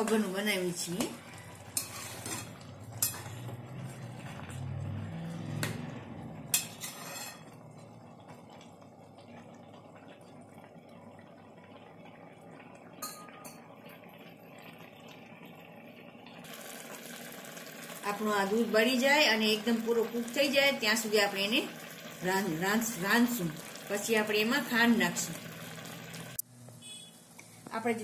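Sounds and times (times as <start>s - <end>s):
milk simmering: 0.0s - 27.8s
ladle scraping a metal pan: 1.2s - 3.5s, 6.5s - 7.6s.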